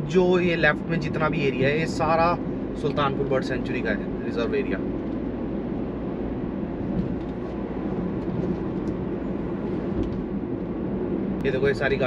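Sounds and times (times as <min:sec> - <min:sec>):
car engine: 0:00.0 - 0:12.0
road noise inside car: 0:00.0 - 0:12.0.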